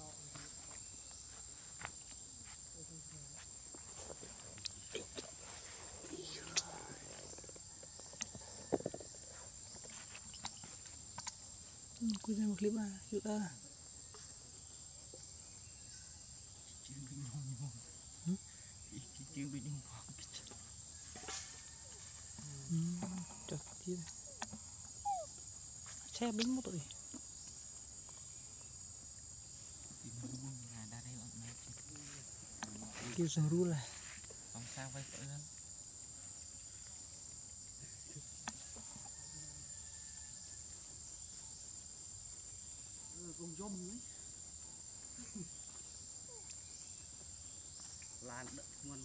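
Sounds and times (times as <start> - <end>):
insects droning: 0.0 - 49.0
low voices talking quietly: 4.8 - 7.3.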